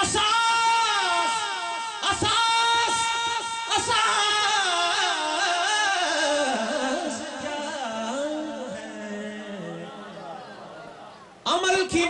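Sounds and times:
man singing into a microphone: 0.0 - 10.4.

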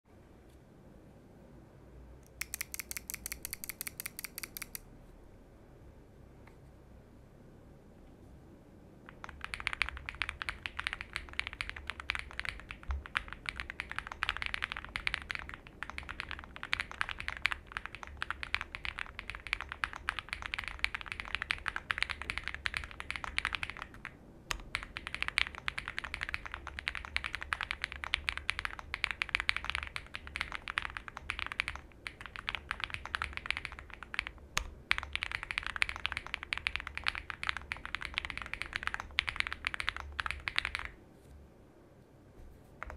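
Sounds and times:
fast typing on mechanical keyboard: 2.4 - 4.8, 9.1 - 41.0.

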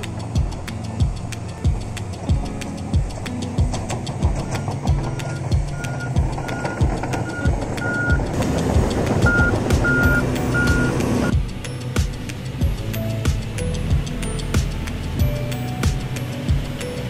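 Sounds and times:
grader blade cutting dirt: 0.0 - 11.3
heavy diesel machinery running: 0.0 - 17.0
reversing alarm beeping: 4.4 - 8.2, 9.2 - 11.3.

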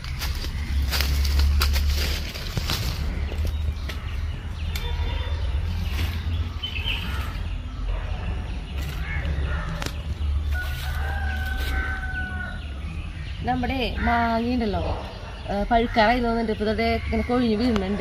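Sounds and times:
small birds chirping: 0.0 - 18.0
rooster crowing: 10.5 - 12.7.

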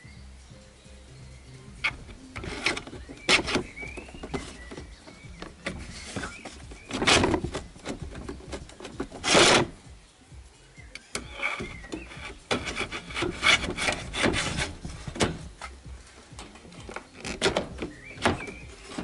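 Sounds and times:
scraping against wire-mesh trap: 1.8 - 9.8, 11.2 - 15.8.

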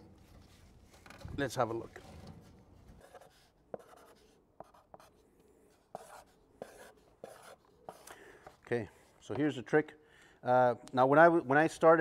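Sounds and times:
marker writing on cardboard: 3.0 - 8.6.

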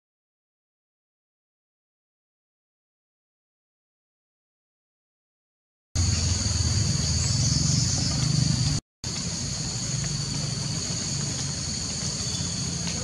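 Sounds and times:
high-pitched insect chorus: 6.0 - 13.0
low rumble: 6.0 - 13.0.

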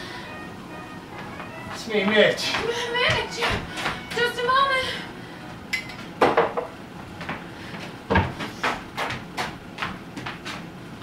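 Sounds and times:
knocks and thumps on wood: 8.1 - 10.4.

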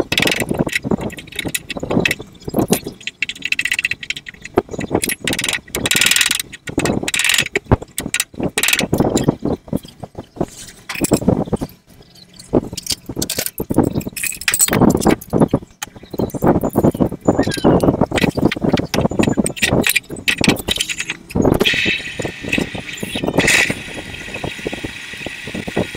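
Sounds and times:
metal tools clinking: 10.6 - 21.7.

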